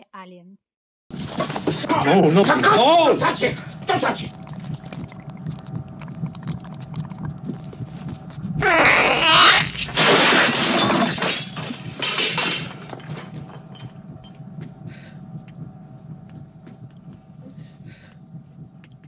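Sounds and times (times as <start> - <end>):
low spaceship hum: 1.2 - 19.0
creature hissing shrieks: 8.6 - 9.8.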